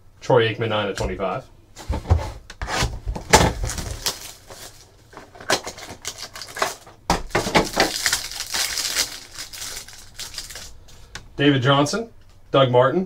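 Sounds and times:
plastic card sleeves rustling: 3.6 - 6.8, 7.6 - 10.8.

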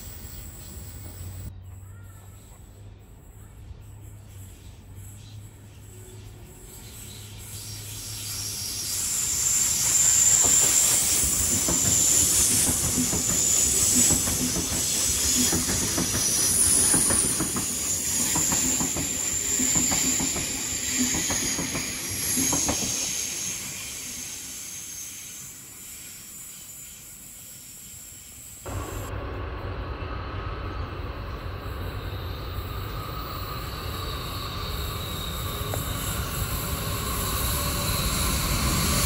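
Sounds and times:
electric train passing: 0.0 - 1.6, 2.8 - 39.0
wheels clicking over rail joints: 10.3 - 23.0.

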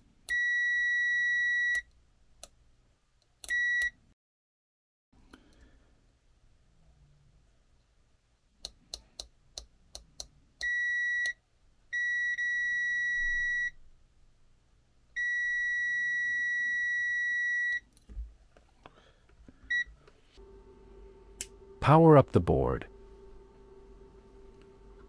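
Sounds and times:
multimeter continuity beeps: 0.3 - 1.8, 10.6 - 11.4.

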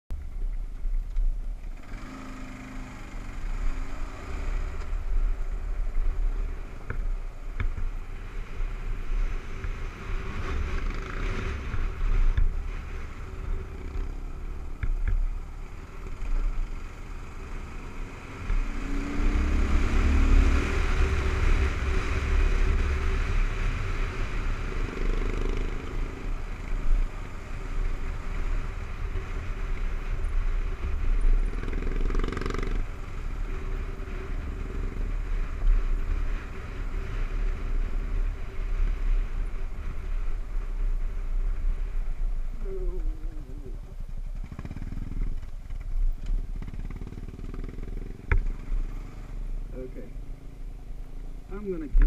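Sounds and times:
motorcycle engine revving: 1.7 - 52.0.

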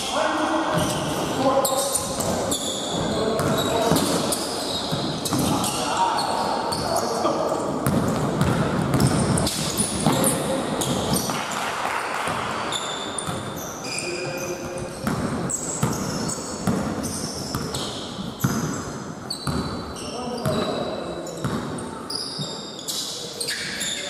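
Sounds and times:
sneakers squeaking on court floor: 0.7 - 11.7, 12.3 - 24.0.

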